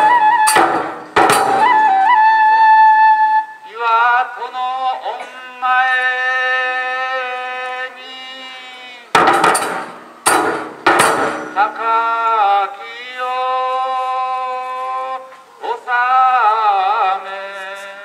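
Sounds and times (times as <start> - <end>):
sharp percussion strikes ringing: 0.0 - 1.8, 9.2 - 11.7
bamboo flute long notes: 0.0 - 4.2.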